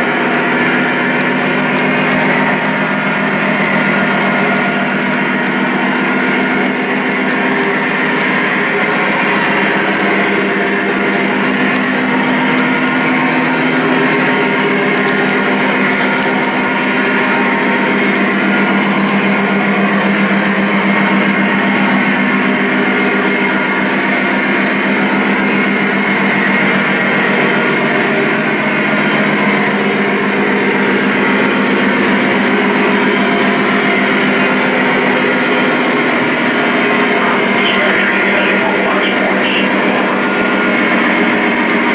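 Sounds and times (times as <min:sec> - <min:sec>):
diesel engine sound: 0:00.0 - 0:41.9
model train cars rumbling on track: 0:00.0 - 0:41.9.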